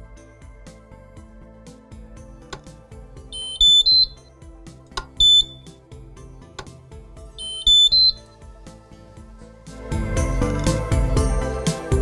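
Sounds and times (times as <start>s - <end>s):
soft background music: 0.0s - 12.0s
short electronic beeps: 3.4s - 4.3s, 5.2s - 5.7s, 7.4s - 8.3s.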